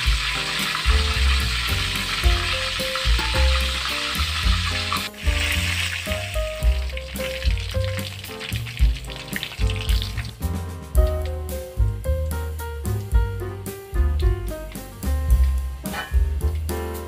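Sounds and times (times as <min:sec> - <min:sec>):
chicken sizzling in hot oil: 0:00.0 - 0:11.2
background music: 0:00.0 - 0:17.0.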